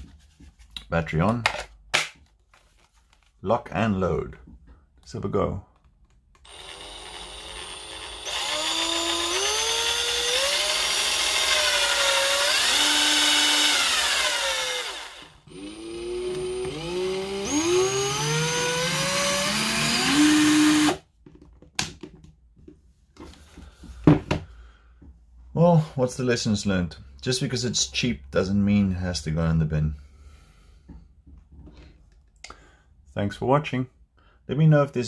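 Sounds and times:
cordless drill motor whine: 6.4s - 21.0s.

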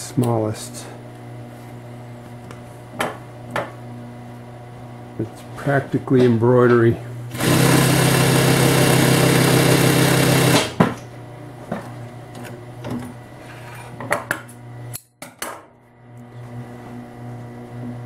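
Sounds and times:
motor humming quietly: 0.0s - 7.4s
sewing machine stitching: 7.3s - 10.8s.

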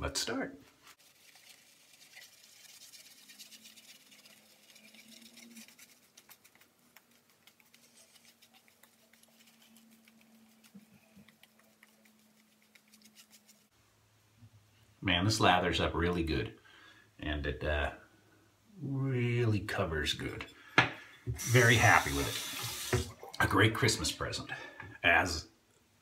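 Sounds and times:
shaving brush swishing lather: 0.8s - 13.7s, 21.4s - 23.2s.

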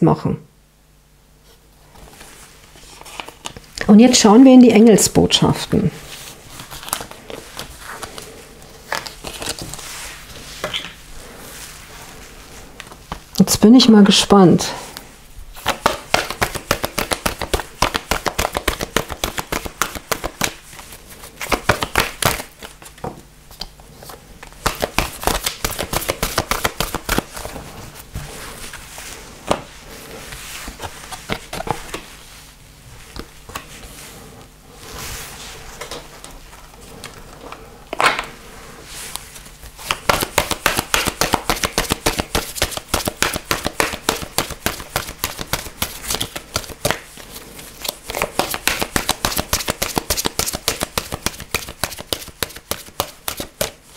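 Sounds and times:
cards being shuffled: 1.9s - 3.9s, 6.0s - 11.0s, 15.6s - 32.2s, 33.0s - 34.0s, 39.0s - 53.9s
sharp card snap: 24.6s - 27.3s, 39.8s - 47.0s.

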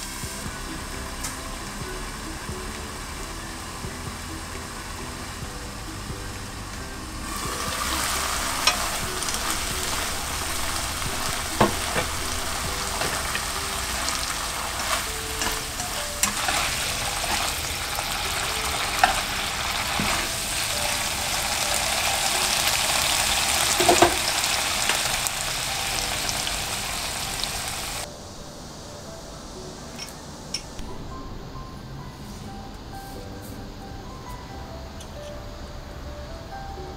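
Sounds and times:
food sizzling in a frying pan: 0.0s - 6.6s, 7.2s - 28.1s.

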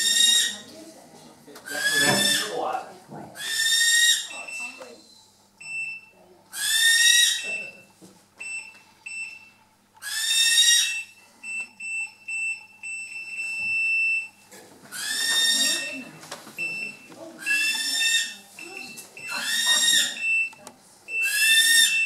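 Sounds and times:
barn owl screeching: 0.0s - 0.6s, 1.7s - 2.6s, 3.4s - 4.4s, 6.5s - 7.7s, 10.0s - 11.1s, 14.9s - 15.9s, 17.4s - 18.5s, 19.3s - 20.2s, 21.2s - 22.0s.

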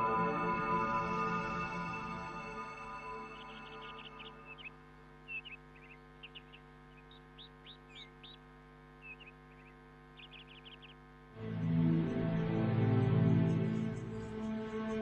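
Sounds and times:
faint steady hum: 0.0s - 15.0s
small birds chirping: 3.0s - 15.0s.

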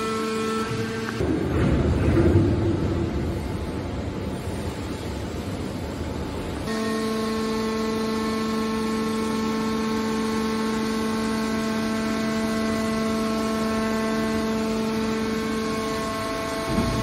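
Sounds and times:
hydraulic power unit whine: 0.0s - 17.0s.

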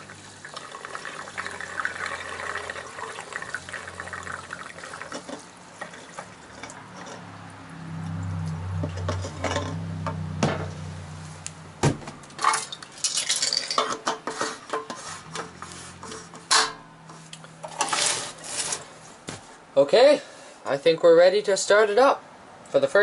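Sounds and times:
gasoline pouring into fuel tank: 0.0s - 7.2s
plastic and metal clunks: 11.8s - 12.2s.

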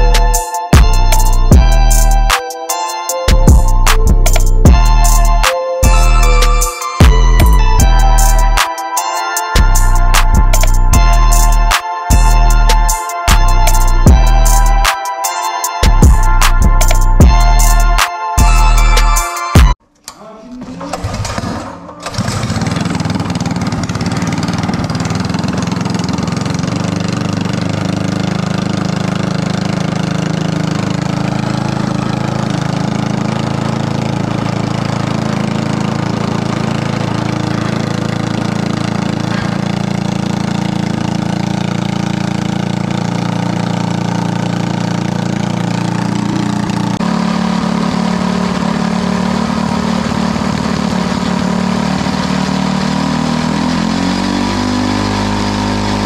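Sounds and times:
engine running at fast idle: 9.6s - 14.9s, 21.0s - 56.0s
engine pull-started: 20.0s - 56.0s.

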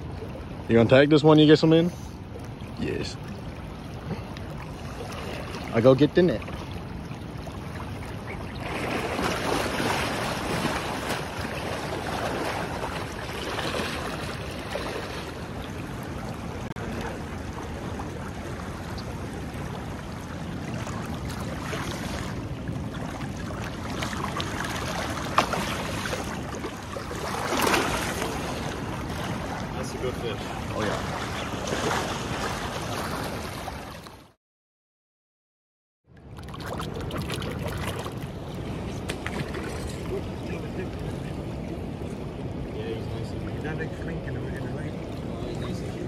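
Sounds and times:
fast-flowing river water: 0.0s - 34.0s
water swishing: 0.0s - 34.4s, 36.1s - 46.0s.

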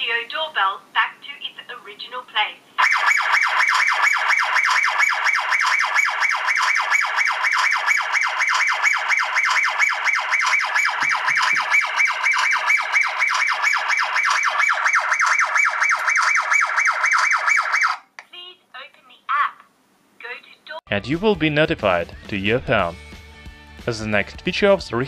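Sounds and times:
electronic siren pulsing: 2.8s - 18.0s.

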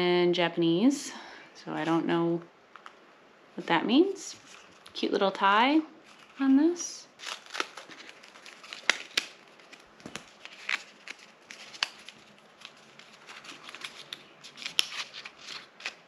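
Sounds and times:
paper rustling and crinkling: 4.3s - 5.0s, 6.0s - 6.5s, 7.2s - 16.0s.

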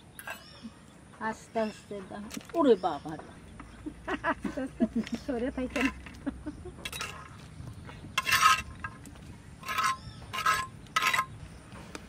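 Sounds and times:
spatula scraping a clay plate: 5.1s - 6.2s, 6.8s - 11.4s.

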